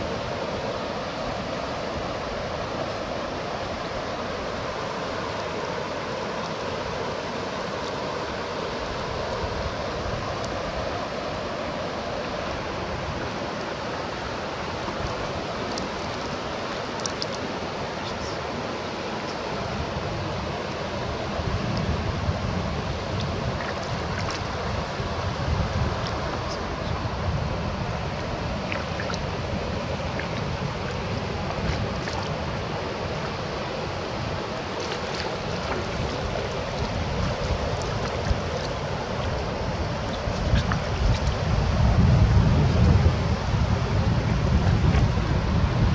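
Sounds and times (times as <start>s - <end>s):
water rushing at shoreline: 0.0s - 45.9s
faint clicks: 17.0s - 17.4s.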